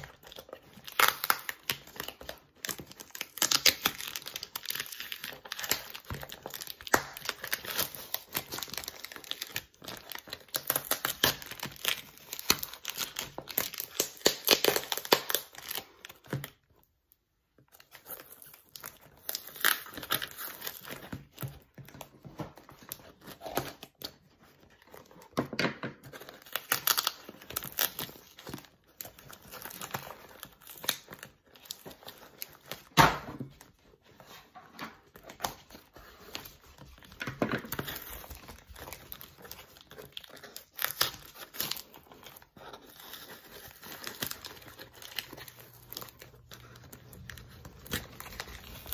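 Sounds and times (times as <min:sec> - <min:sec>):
packing tape ripping: 0:00.0 - 0:16.4, 0:35.1 - 0:48.9
wrapping crinkling: 0:00.0 - 0:48.9.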